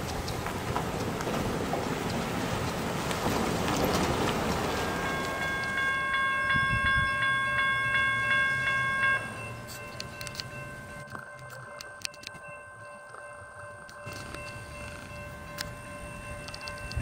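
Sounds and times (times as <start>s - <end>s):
railroad crossing bell ringing: 0.0s - 17.0s
road traffic noise: 0.0s - 17.0s.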